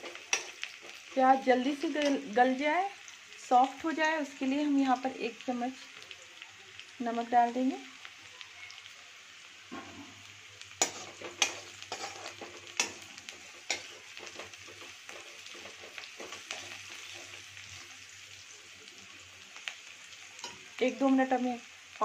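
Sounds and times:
onions sizzling in oil: 0:00.0 - 0:22.0
spoon scraping and clinking pan: 0:10.8 - 0:13.0.

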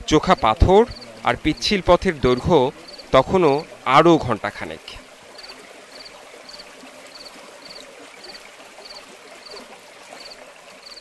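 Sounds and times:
stream trickling over rocks: 0:00.0 - 0:11.0
cricket chirping: 0:00.3 - 0:01.6, 0:02.3 - 0:03.6, 0:05.4 - 0:09.6, 0:10.2 - 0:11.0.

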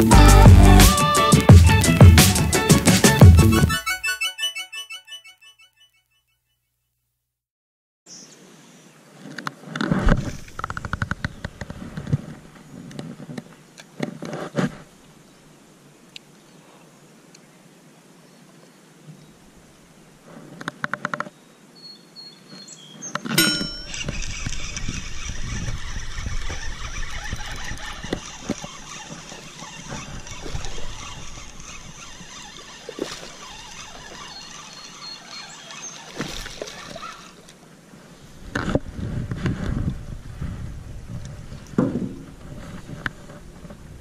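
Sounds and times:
fishing reel whirring: 0:23.4 - 0:37.5.

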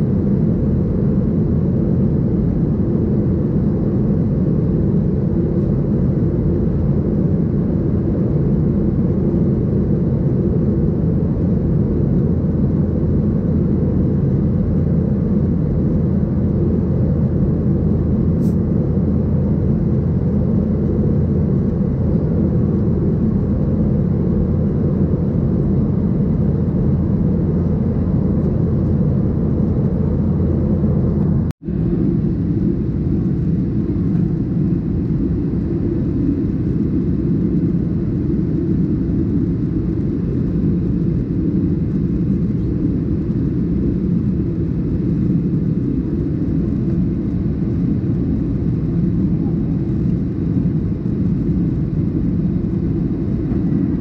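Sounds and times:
airplane cabin roar: 0:00.0 - 0:54.0.

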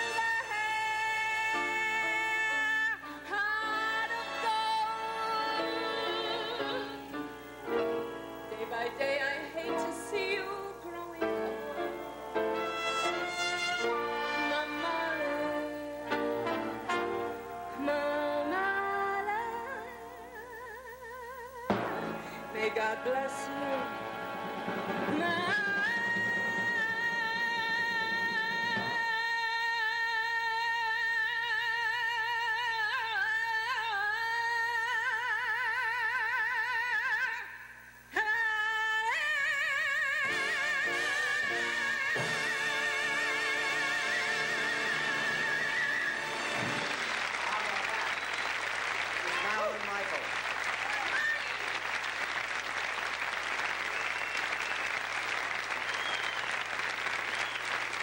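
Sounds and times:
band playing: 0:00.0 - 0:19.8, 0:21.7 - 0:29.4, 0:40.2 - 0:48.0
audience applauding: 0:45.4 - 0:58.0.

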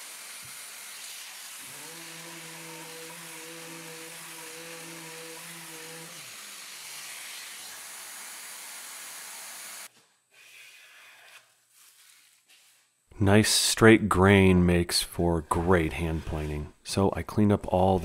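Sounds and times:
electric sander hissing and humming: 0:00.0 - 0:09.9.

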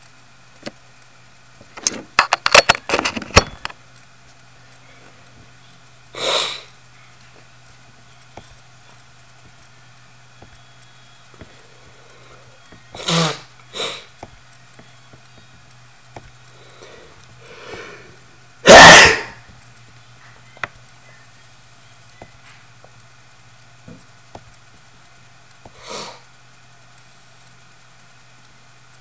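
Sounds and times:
low steady hum: 0:00.0 - 0:29.0
person's breathy noise bursts: 0:06.2 - 0:06.7.

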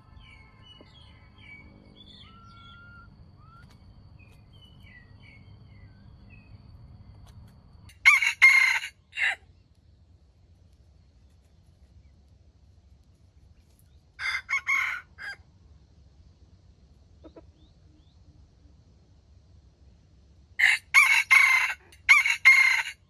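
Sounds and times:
rooster crowing: 0:01.4 - 0:03.6, 0:07.9 - 0:09.4, 0:14.2 - 0:15.4, 0:20.6 - 0:23.0.

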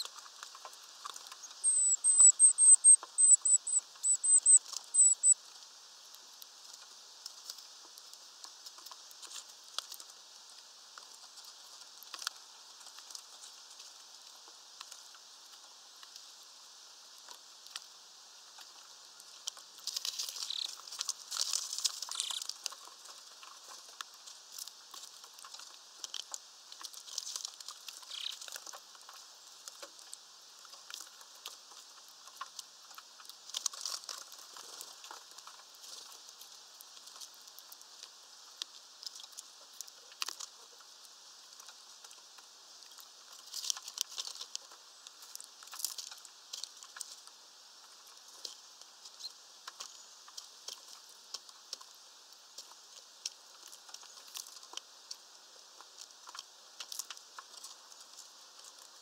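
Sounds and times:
birds pecking at feeder: 0:00.0 - 0:59.0
birds scrabbling on branches: 0:00.0 - 0:59.0
wings fluttering: 0:18.6 - 0:37.6.

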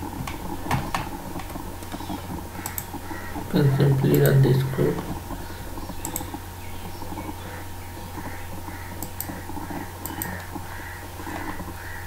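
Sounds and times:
low electrical hum: 0:00.0 - 0:12.0
computer mouse clicks: 0:02.6 - 0:02.9, 0:06.0 - 0:06.4, 0:09.0 - 0:09.4, 0:10.0 - 0:10.6.

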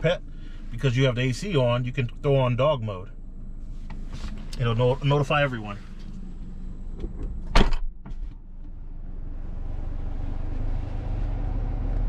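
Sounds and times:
air conditioning fan rumble: 0:00.0 - 0:09.5
car door shutting: 0:06.9 - 0:08.8.

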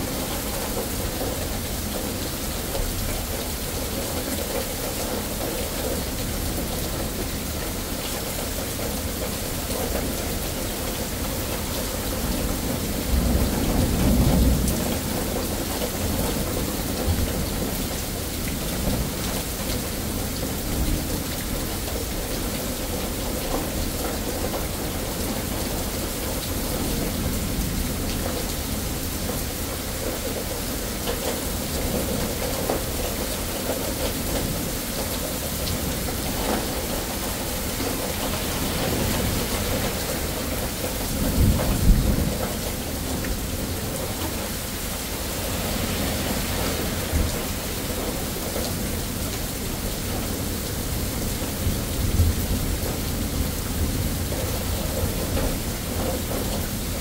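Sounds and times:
heavy rain on pavement: 0:00.0 - 0:57.0
thunder rumbling: 0:35.9 - 0:49.2.

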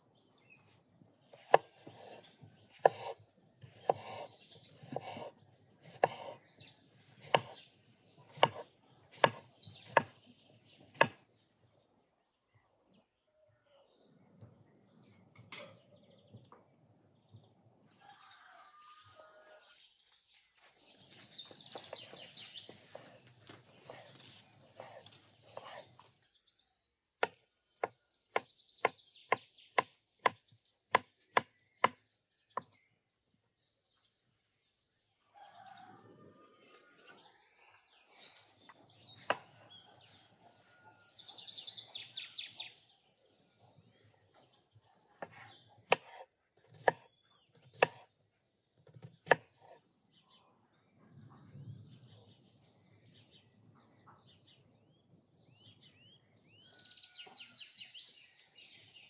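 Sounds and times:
birds chirping: 0:00.1 - 0:59.0
knife cutting on wooden board: 0:01.3 - 0:06.4, 0:07.2 - 0:07.6, 0:08.3 - 0:08.6, 0:09.2 - 0:10.1, 0:24.8 - 0:26.0, 0:45.2 - 0:47.0, 0:47.6 - 0:48.0, 0:48.9 - 0:49.8.

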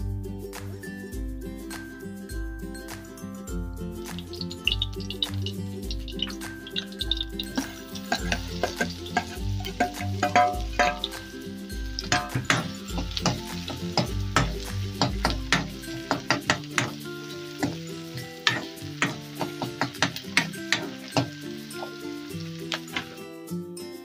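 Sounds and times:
onions sizzling in hot oil: 0:03.6 - 0:23.5
spoon scraping pan: 0:04.2 - 0:23.1.

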